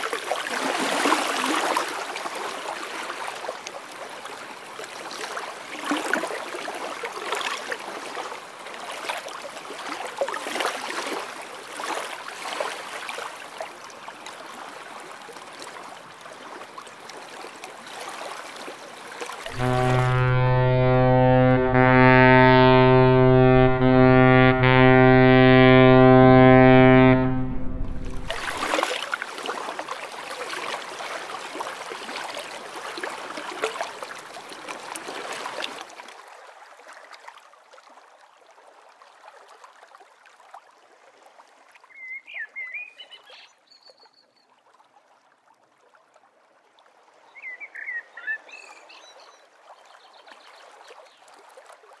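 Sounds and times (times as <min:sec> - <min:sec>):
held musical chord: 0:19.5 - 0:28.7.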